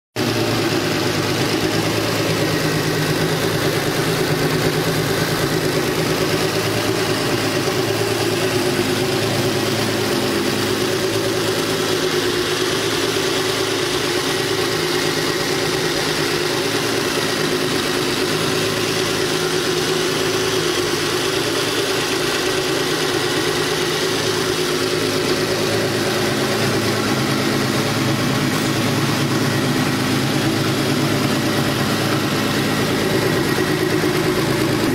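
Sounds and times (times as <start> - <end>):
car engine idling: 0.2 - 34.9.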